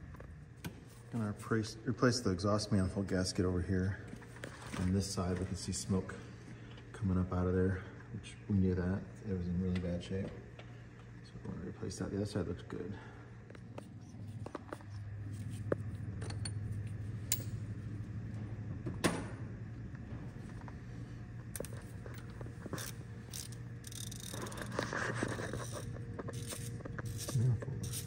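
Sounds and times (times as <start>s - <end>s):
steady low hum: 0.0s - 28.0s
metal tools clinking and scraping: 21.6s - 28.0s.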